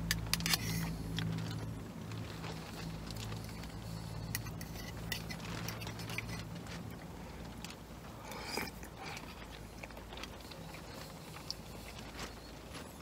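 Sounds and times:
low steady hum: 0:00.0 - 0:13.0
utensil scraping metal pot: 0:00.1 - 0:01.0, 0:03.3 - 0:06.6.

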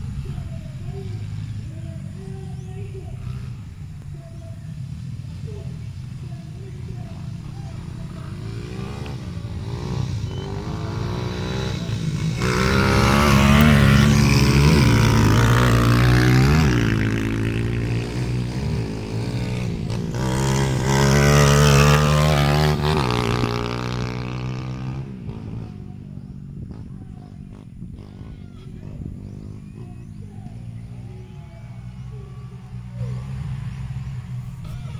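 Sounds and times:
dirt motorcycle engine revving: 0:00.0 - 0:34.9.

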